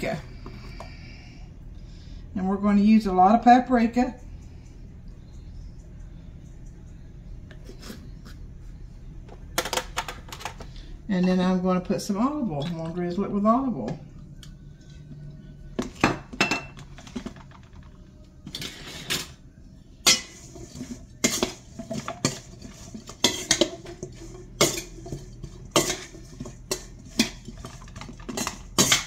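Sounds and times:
metal utensil scraping steel bowl: 18.5s - 19.4s, 20.0s - 29.0s.

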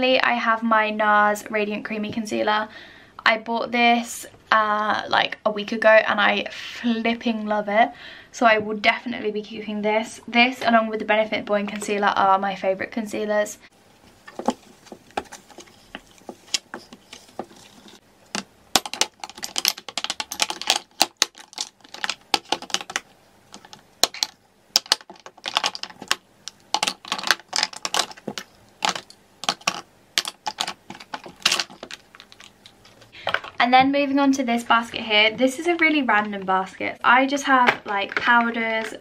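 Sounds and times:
makeup bottles clicking: 18.4s - 33.6s.

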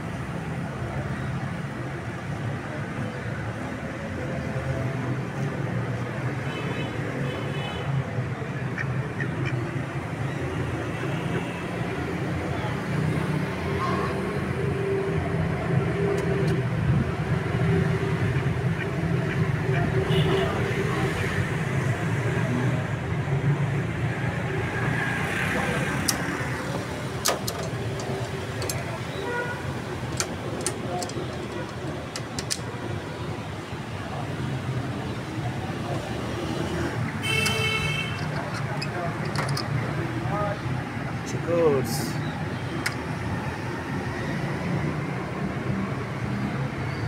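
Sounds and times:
street traffic rumble: 0.0s - 47.0s
sharp clicks: 27.1s - 29.0s, 30.0s - 32.7s, 37.4s - 39.8s.

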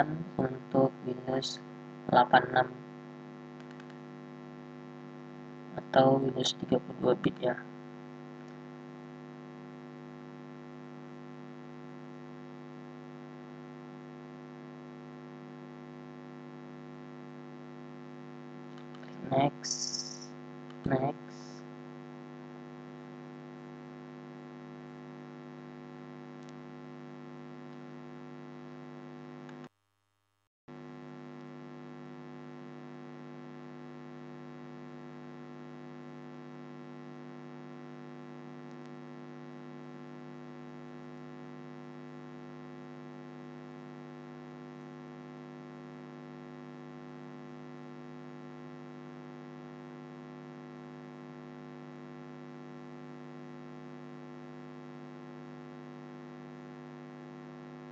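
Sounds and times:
electrical mains hum: 0.0s - 29.7s.

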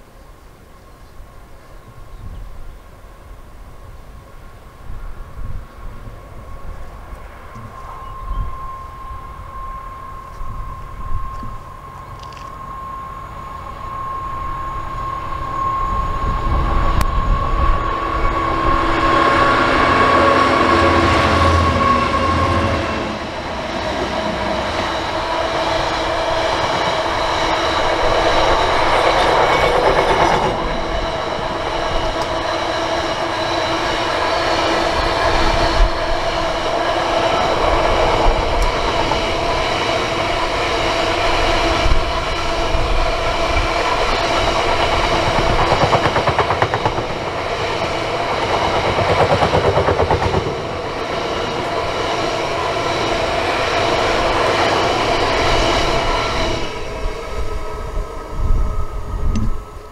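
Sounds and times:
diesel locomotive engine: 0.0s - 59.9s
passenger train passing: 0.0s - 59.9s
train wheels clacking on rails: 16.9s - 57.2s.

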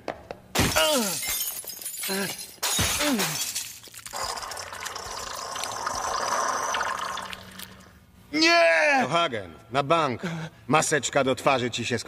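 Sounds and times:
glass flasks shattering: 0.6s - 7.9s
liquid goo pouring down a drain: 4.1s - 7.9s.

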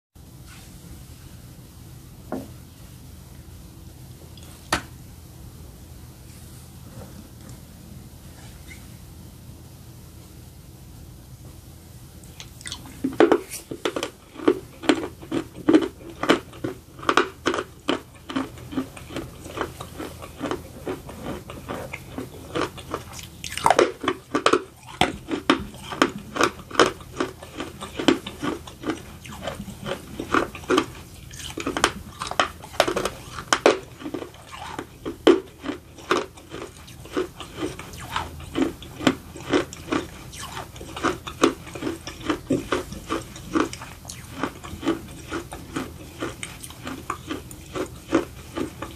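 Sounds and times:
chewing with dry crunches: 12.2s - 48.9s.

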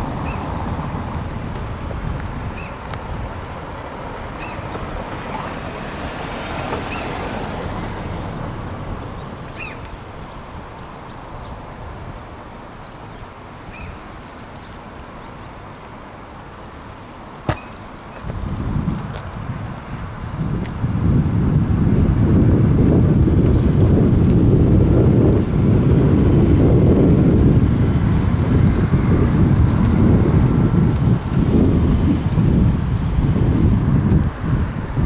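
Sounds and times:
traffic noise: 0.0s - 35.0s
wind: 0.0s - 35.0s
wind rumble on microphone: 0.0s - 35.0s
short bird calls: 9.5s - 10.0s, 13.7s - 14.0s, 17.5s - 17.9s
sharp click: 17.5s - 17.8s.

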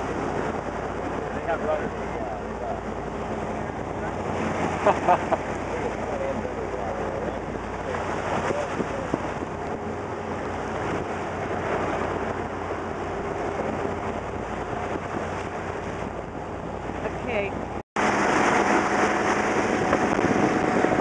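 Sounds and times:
rushing hissing water of wake: 0.0s - 9.8s, 18.0s - 21.0s
wind buffeting microphone: 0.0s - 21.0s.

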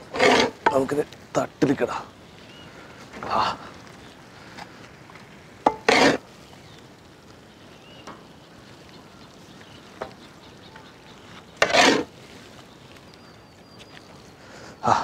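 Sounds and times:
ladle scraping food: 0.1s - 0.7s, 5.7s - 6.2s, 11.6s - 12.1s.

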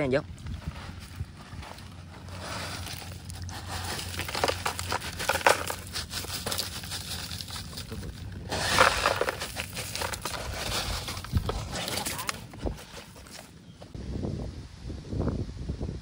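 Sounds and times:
plastic bag rustling: 0.5s - 13.6s
ice chunks clattering: 2.1s - 13.4s.

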